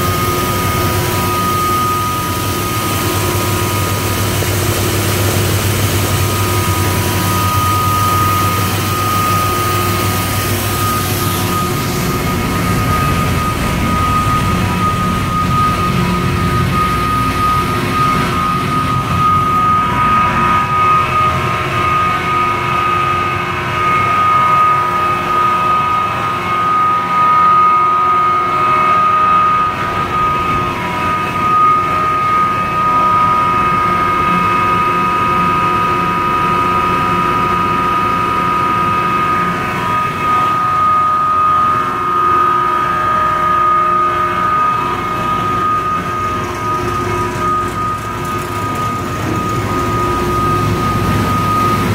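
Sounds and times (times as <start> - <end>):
high-pitched whine: 0.0 - 51.9
industrial machine hum: 0.0 - 51.9.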